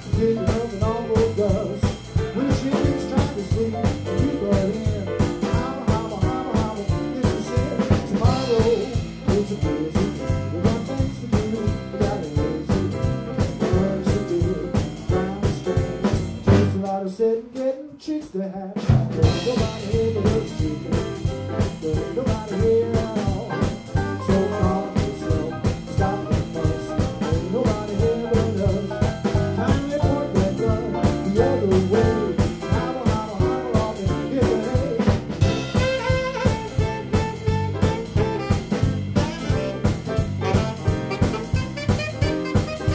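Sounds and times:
drum kit: 0.0 - 42.9
jump blues band playing: 0.0 - 42.9
organ keyboard: 20.1 - 42.9
saxophone: 35.4 - 42.9.

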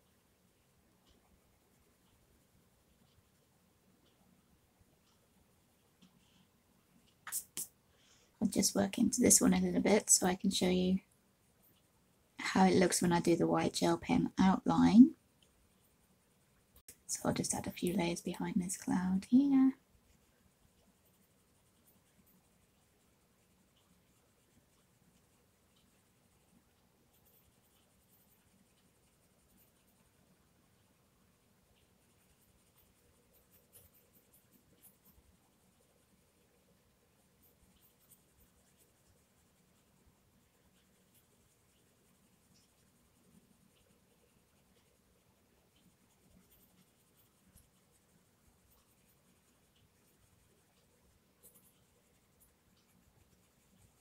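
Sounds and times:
coloured pencil scratching on paper: 17.2 - 30.2, 31.7 - 54.0.

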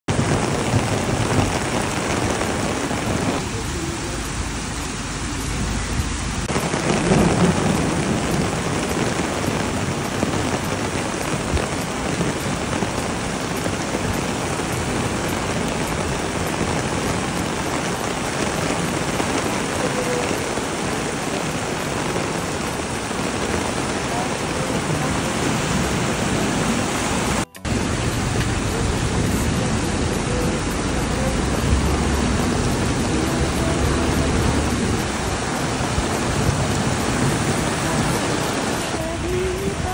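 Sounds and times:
heavy rain pouring: 0.0 - 39.9
running floodwater: 0.0 - 39.9.

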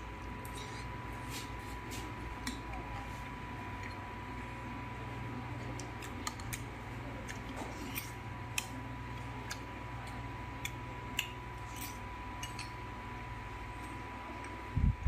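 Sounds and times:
fingers working food in a bowl: 5.5 - 13.1
chewing: 5.6 - 12.8.

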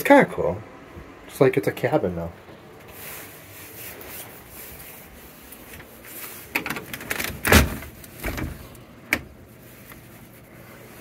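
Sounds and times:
door scraping and rattling: 5.7 - 9.4.

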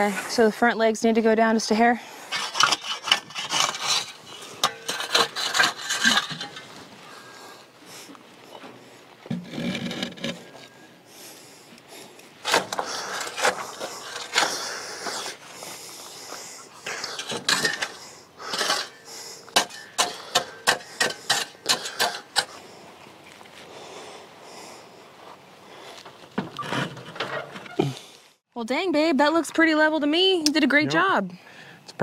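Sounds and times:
shovel scraping and chopping dirt: 2.3 - 6.9, 9.3 - 10.8, 12.3 - 15.9, 16.8 - 22.7, 26.0 - 28.1.

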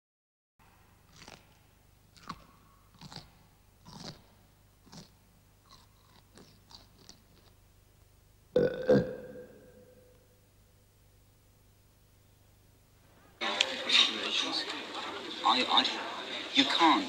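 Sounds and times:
chewing and crunching: 1.1 - 7.6.

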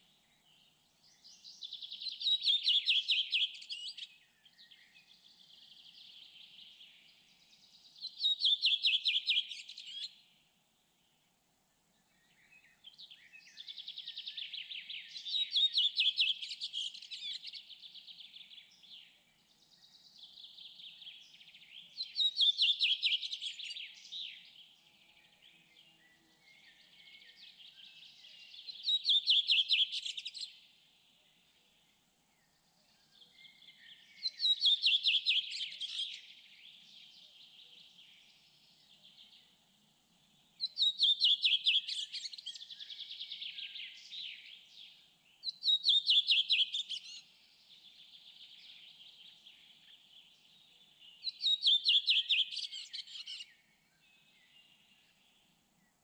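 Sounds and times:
faint birds twittering: 0.0 - 56.0.

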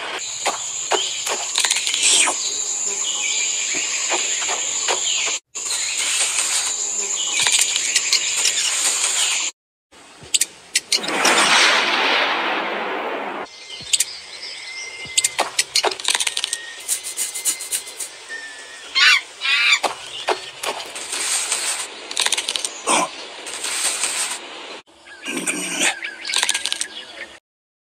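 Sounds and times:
sharp clicks: 0.4 - 3.0, 15.2 - 18.1, 19.8 - 22.8, 26.4 - 26.9
loud rushing blast: 11.0 - 13.5
squealing calls: 14.9 - 21.8.

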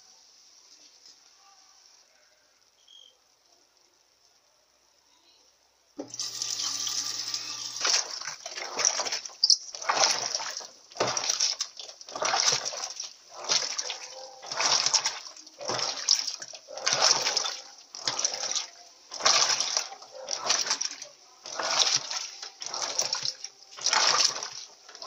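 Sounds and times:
washer low hum: 6.0 - 25.0
water sloshing and churning: 6.1 - 25.0.

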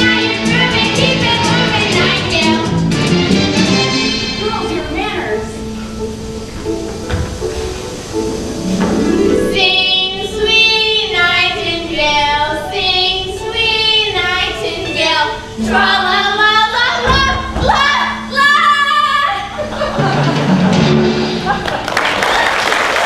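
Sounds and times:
girls singing: 0.0 - 2.8, 9.4 - 19.5
musical accompaniment: 0.0 - 22.3.

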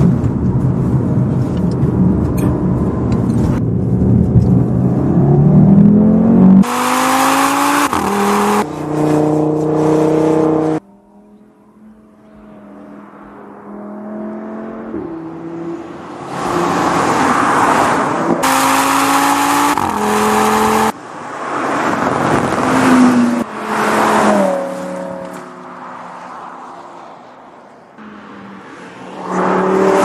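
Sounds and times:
car engine accelerating hard: 0.0 - 21.0.

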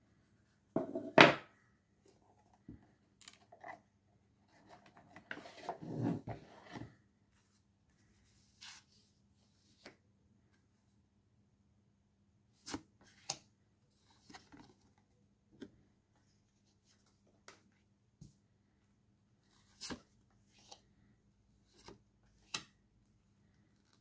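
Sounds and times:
cardboard knock on wooden desk: 0.8 - 1.5.

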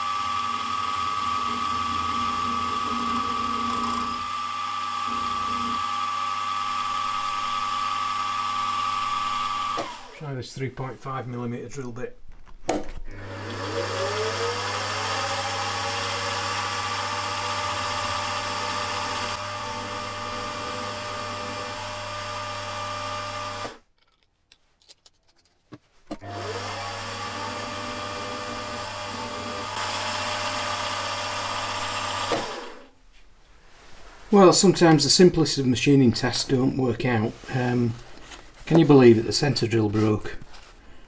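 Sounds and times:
drill boring into metal: 0.0 - 10.2, 13.2 - 23.8, 26.2 - 32.9
drill motor spinning: 0.0 - 10.2, 13.1 - 23.8, 26.2 - 32.9.

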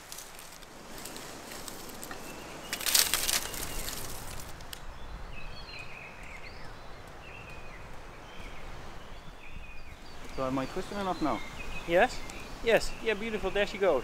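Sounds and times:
dry thatch rustling and crackling: 0.0 - 4.9
small birds chirping: 0.0 - 14.0.

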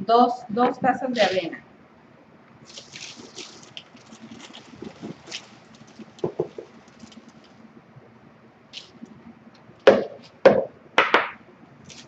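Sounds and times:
oats pouring: 2.6 - 7.5
oats rustling: 2.6 - 7.6
cup knocking in plastic bowl: 6.1 - 6.8, 9.9 - 11.4.

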